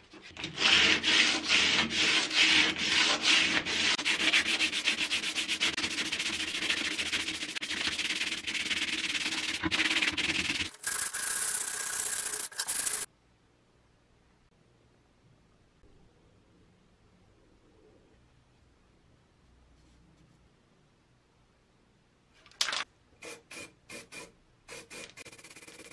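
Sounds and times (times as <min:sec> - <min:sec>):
sandpaper rasping on metal: 0:00.4 - 0:13.1.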